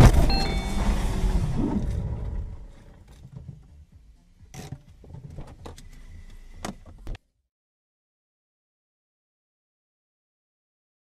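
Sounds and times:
car engine rumble: 0.0s - 7.3s
sharp clicks and knocks: 2.9s - 3.9s.

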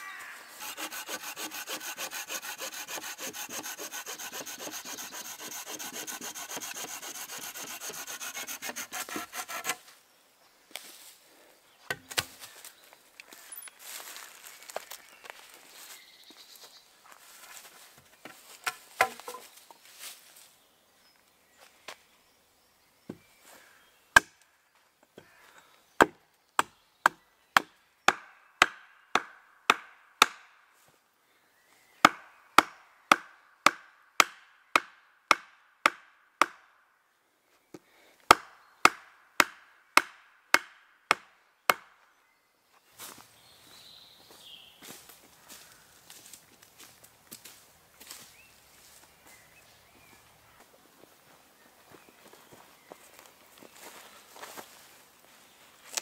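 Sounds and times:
axe chopping wood: 11.9s - 12.4s, 18.6s - 19.4s, 26.0s - 30.5s, 32.0s - 36.6s, 38.3s - 41.9s
footsteps in leaf litter: 12.3s - 18.6s, 19.3s - 20.6s, 42.9s - 49.8s.

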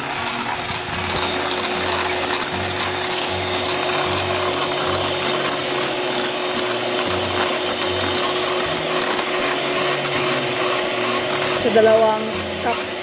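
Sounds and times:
electric hand mixer whipping cream: 0.0s - 13.0s.

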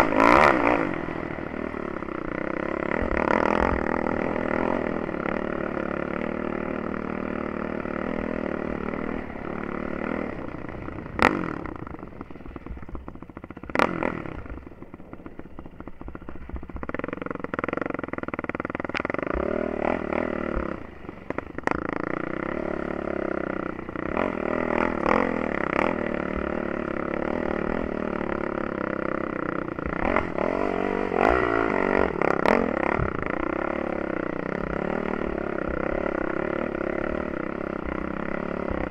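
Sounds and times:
quad engine revving: 0.0s - 38.9s.

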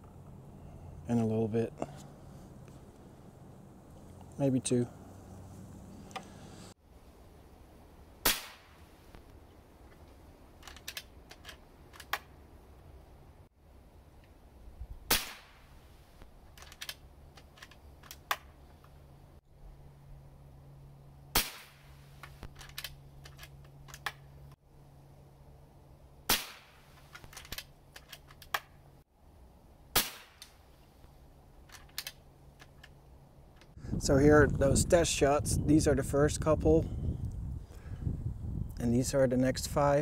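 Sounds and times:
air rifle shots: 8.2s - 8.9s, 15.1s - 15.7s, 21.3s - 22.2s, 26.3s - 27.0s, 29.9s - 30.6s.

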